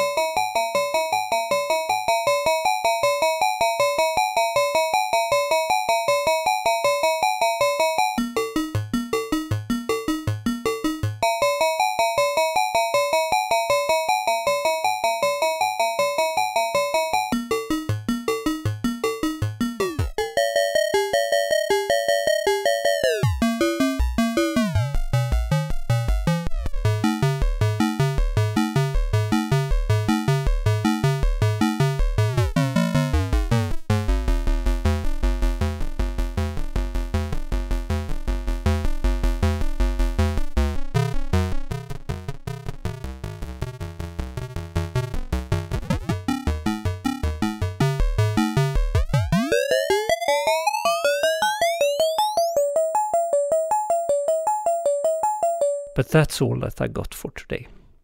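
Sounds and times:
bit-crushed synthesizer sequence: 41.4 - 56.1.

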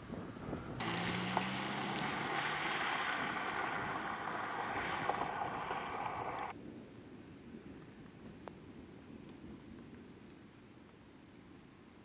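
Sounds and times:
car engine hum: 0.0 - 6.5
storm rushing hiss: 0.2 - 6.5.

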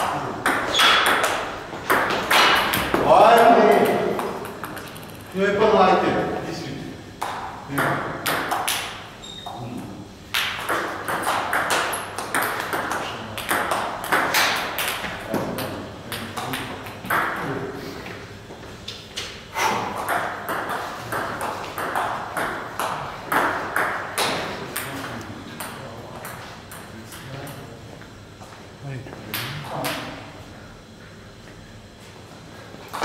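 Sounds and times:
table tennis ball hits: 0.0 - 5.3, 7.2 - 9.1, 10.3 - 17.6, 19.6 - 27.2.

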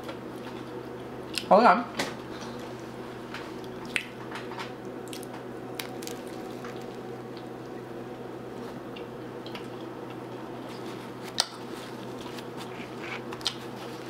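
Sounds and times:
steady background hum: 0.0 - 14.0
person chewing food: 4.8 - 7.7, 8.9 - 14.0.

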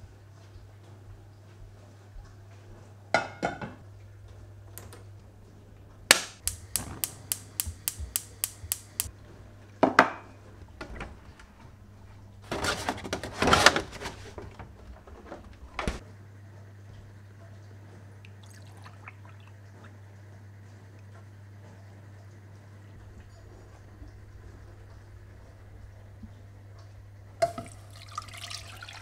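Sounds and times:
pan set down on grate: 3.2 - 3.8
spark igniter clicking: 6.1 - 9.1
fridge door thudding open: 12.4 - 16.0.

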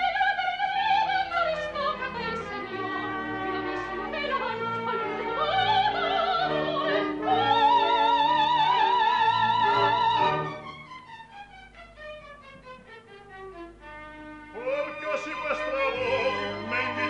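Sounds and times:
operatic singing: 0.0 - 10.7, 14.5 - 17.0
orchestra playing: 1.4 - 17.0.

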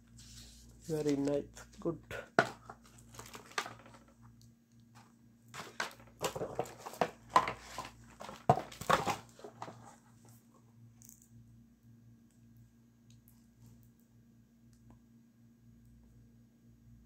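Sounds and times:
faint steady hum: 0.0 - 17.0
cardboard and paper rustling: 0.1 - 4.2, 4.9 - 10.5.

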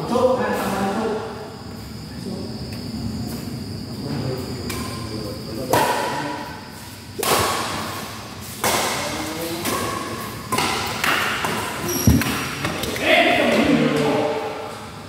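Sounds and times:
rackets striking shuttlecock: 8.6 - 13.0
heavy thud: 12.0 - 12.6.

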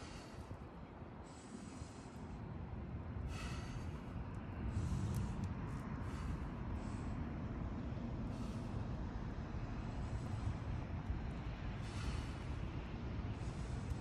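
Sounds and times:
man breathing hard through nose: 0.0 - 14.0
passing traffic rumble: 0.0 - 14.0
sharp exhale: 3.3 - 4.0, 11.8 - 12.6.

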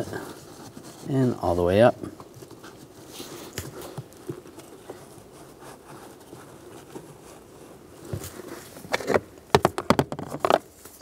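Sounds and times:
filter tapping and scraping plastic: 8.0 - 10.7.

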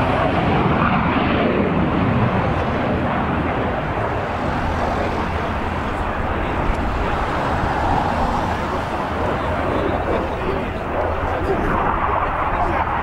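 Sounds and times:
jet flying past: 0.0 - 13.0.

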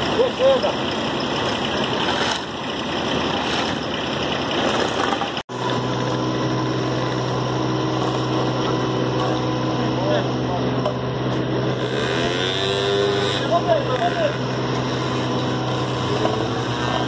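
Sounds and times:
diesel engine running: 0.0 - 17.0
road roller engine hum: 0.0 - 17.0
shovels scraping asphalt: 1.4 - 4.0, 13.0 - 17.0.

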